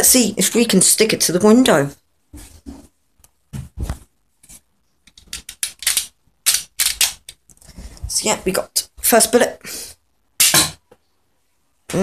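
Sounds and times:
toy blaster plastic clicks: 5.4s - 7.3s.

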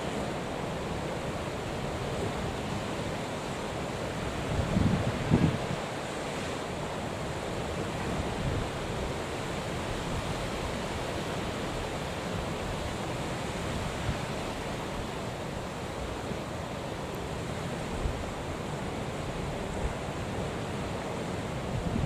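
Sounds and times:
rough sea waves: 0.0s - 22.0s
wind buffeting microphone: 4.4s - 5.9s, 21.6s - 22.0s.

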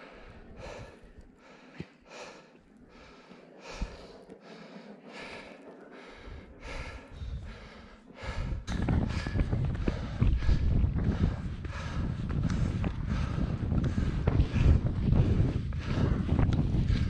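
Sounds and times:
person breathing hard: 0.0s - 17.0s
wind buffeting microphone: 6.0s - 17.0s.

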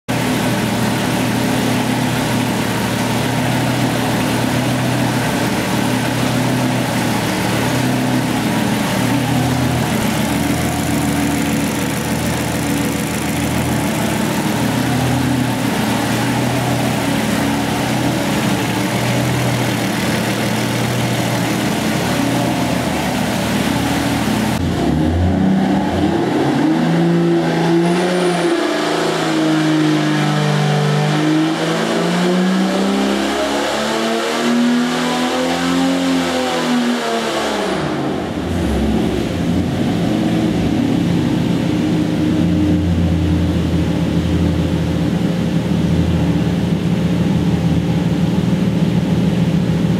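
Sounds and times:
engine running on dyno: 0.1s - 49.9s.

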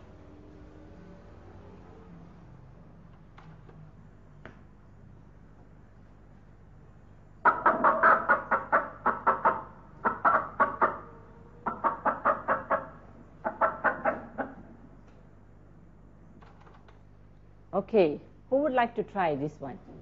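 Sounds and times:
hen clucking: 7.4s - 14.6s.

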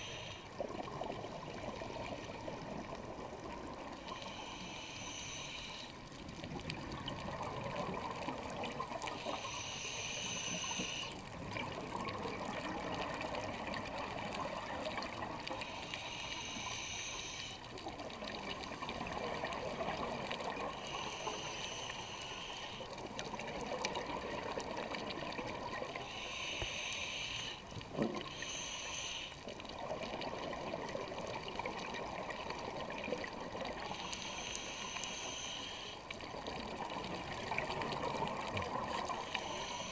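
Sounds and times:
scuba regulator hissing inhale: 0.0s - 0.5s, 4.1s - 6.0s, 9.1s - 11.3s, 15.5s - 17.7s, 20.6s - 23.0s, 26.0s - 29.5s, 33.8s - 36.1s, 39.0s - 39.9s
bubbling exhale: 37.5s - 39.9s.

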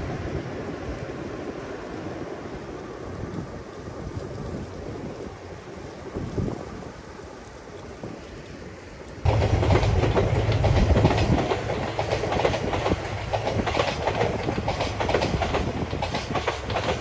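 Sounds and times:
train low drone: 0.0s - 6.0s, 9.0s - 17.0s
wheels clacking over rail joints: 9.2s - 17.0s.

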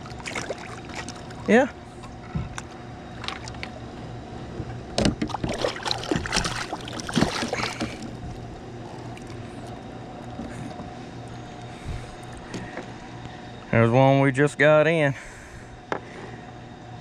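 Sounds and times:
fish thrashing and splashing: 0.0s - 2.1s, 3.1s - 3.8s, 5.2s - 9.8s
river water lapping: 0.0s - 4.0s, 5.2s - 10.8s.

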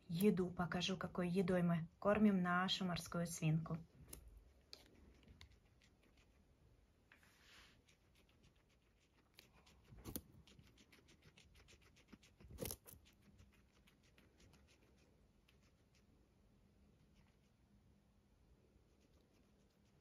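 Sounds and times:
rustling: 7.1s - 16.1s.

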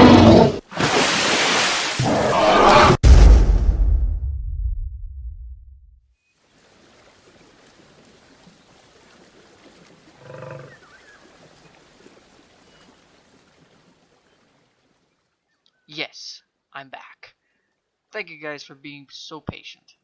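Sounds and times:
deep rumble: 3.0s - 6.0s
stream and small waterfall running: 6.3s - 15.0s.

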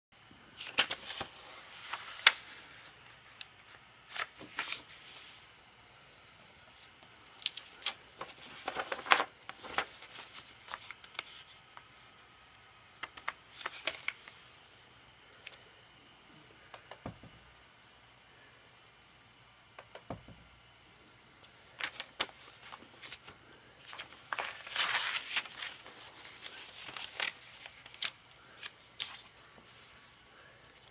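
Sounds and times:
paper rustling and crackling: 0.6s - 5.4s, 6.8s - 11.9s, 13.0s - 14.5s, 21.4s - 30.9s.

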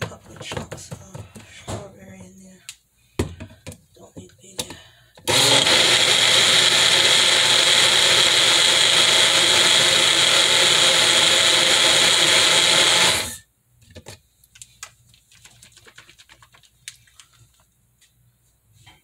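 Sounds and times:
blender running: 5.2s - 13.4s.

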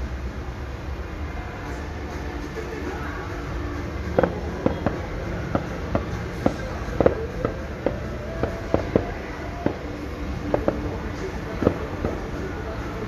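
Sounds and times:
low background rumble: 0.0s - 13.0s
fireworks popping: 4.1s - 13.0s.

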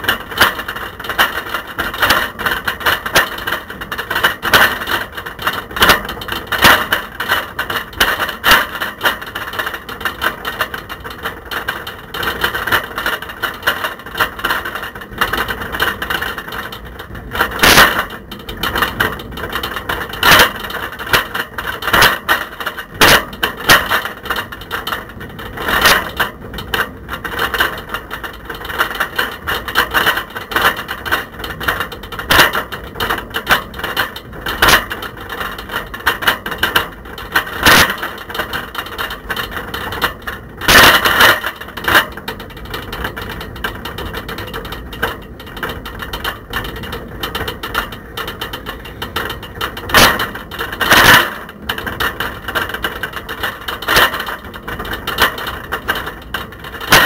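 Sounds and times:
camera rattling in bicycle basket: 0.0s - 57.0s.

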